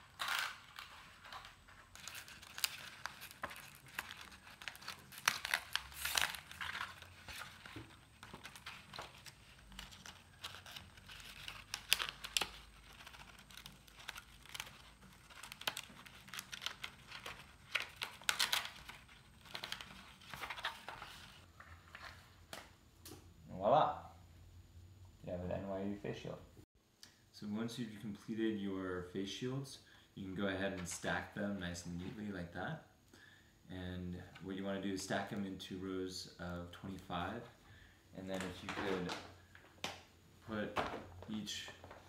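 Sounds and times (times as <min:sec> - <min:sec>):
plastic sheet crinkling and clicking: 0:00.0 - 0:21.5.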